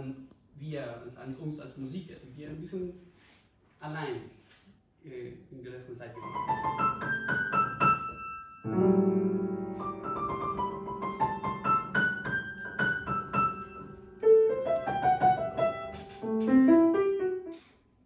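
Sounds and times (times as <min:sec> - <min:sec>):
piano music: 0:06.2 - 0:17.7.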